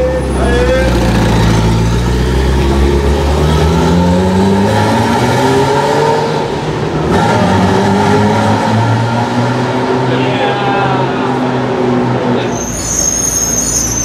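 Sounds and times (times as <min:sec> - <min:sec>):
sports car engine accelerating: 0:00.2 - 0:12.4.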